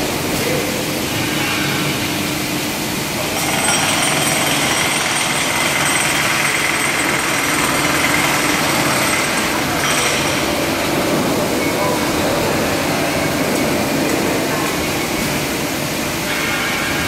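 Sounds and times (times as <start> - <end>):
power hammer on concrete: 3.4 - 10.4.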